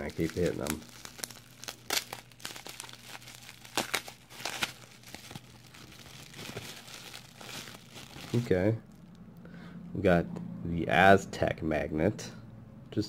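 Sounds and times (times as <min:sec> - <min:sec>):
plastic packing crinkling: 0:00.0 - 0:09.0.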